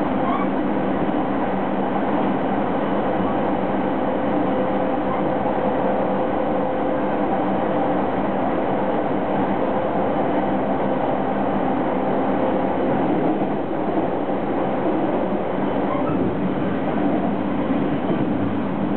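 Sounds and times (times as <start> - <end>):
train wheels rumbling: 7.3 - 18.9.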